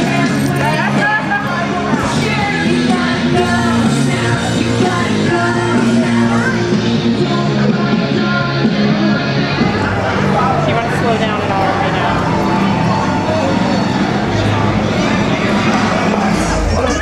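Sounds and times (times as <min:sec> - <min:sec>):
person singing: 0:00.0 - 0:15.5
electric guitar: 0:00.0 - 0:17.0.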